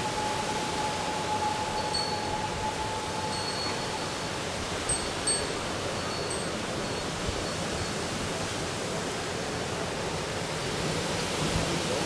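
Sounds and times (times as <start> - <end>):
high tinkling notes: 0.0 - 8.3
steady rain hissing: 0.0 - 12.0.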